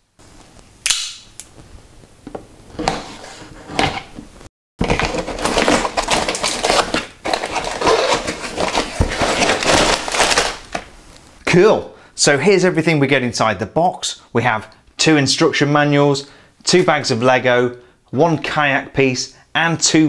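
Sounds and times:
cardboard box rustling and scraping: 2.7s - 4.2s, 4.8s - 10.5s.

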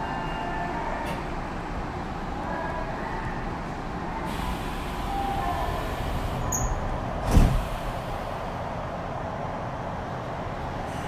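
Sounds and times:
train doors closing thump: 7.2s - 7.8s.

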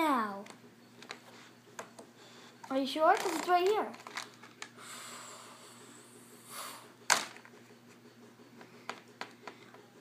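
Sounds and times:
faint steady hum: 0.0s - 10.0s
plastic pieces clicking: 2.6s - 4.7s.

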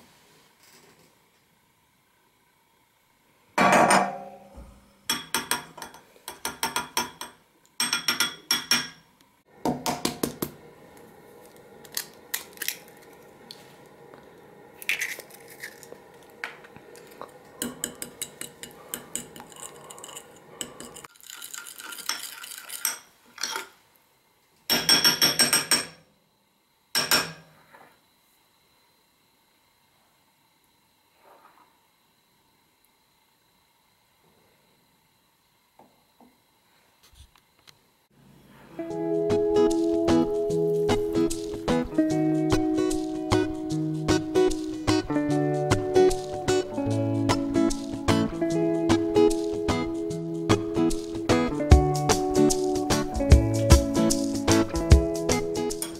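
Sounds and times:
utensils clinking on glass bowl: 5.1s - 9.0s, 17.6s - 23.6s.

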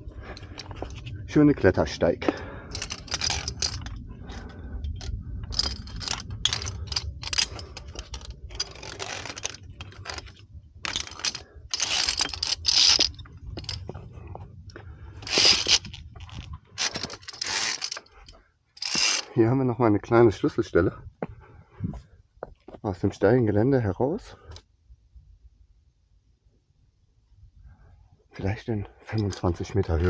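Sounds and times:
low rumble: 0.0s - 22.1s
climber scraping on rock: 2.8s - 14.4s, 15.2s - 19.3s.

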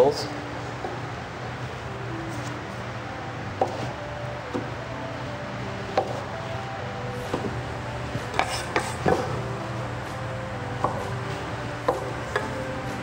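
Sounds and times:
steady low hum: 0.0s - 13.0s
metal scraper chopping on wood: 8.3s - 9.3s.

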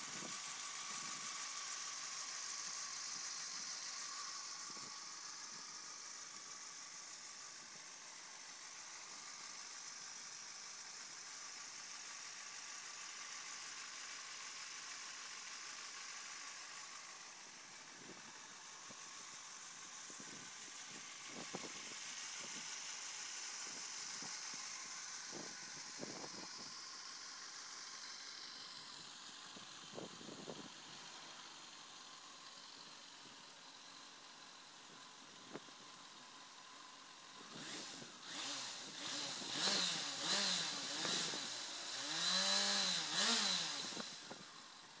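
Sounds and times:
motorcycle engine idling: 0.0s - 45.0s
motorcycle engine revving: 37.4s - 44.5s.

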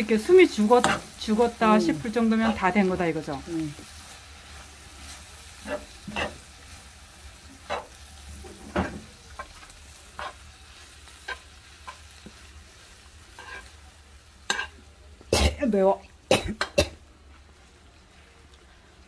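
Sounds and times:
food sizzling in a pan: 0.0s - 19.0s
metal spoon scraping a pan: 0.6s - 2.8s, 5.0s - 6.5s, 7.6s - 10.5s, 13.3s - 13.8s, 14.5s - 14.8s.

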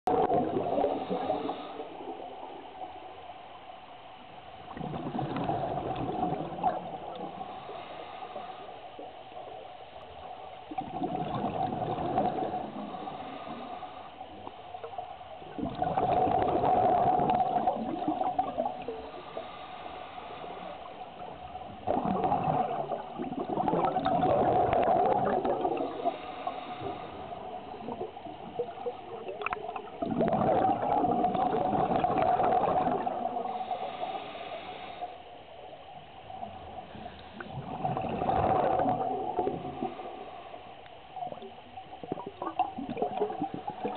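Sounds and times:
gurgling bubble bursts: 0.1s - 1.5s, 4.7s - 7.3s, 10.7s - 13.1s, 15.5s - 19.0s, 21.7s - 26.2s, 27.8s - 33.6s, 37.4s - 40.1s, 41.3s - 43.9s
breathing through regulator: 0.7s - 2.0s, 7.2s - 9.0s, 12.5s - 14.2s, 18.8s - 21.0s, 25.8s - 27.8s, 33.4s - 35.3s.

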